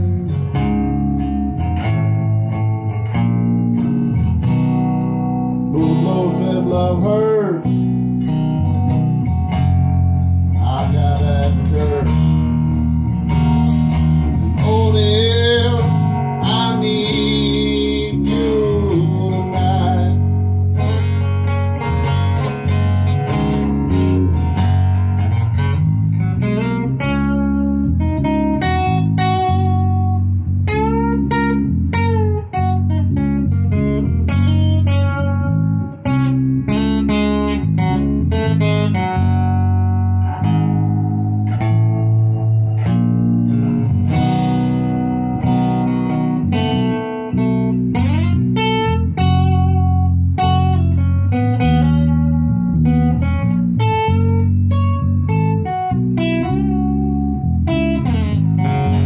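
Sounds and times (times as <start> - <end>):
electric bass guitar: 0.0 - 59.0
strummed guitar: 0.0 - 59.0
man singing: 5.7 - 7.9, 10.6 - 12.4, 14.4 - 20.4.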